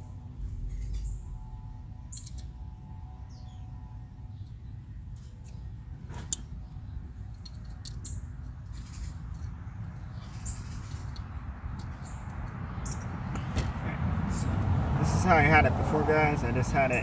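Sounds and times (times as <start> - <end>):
steady low rumble: 0.0 - 17.0
metallic clicks and scrapes: 7.3 - 13.1.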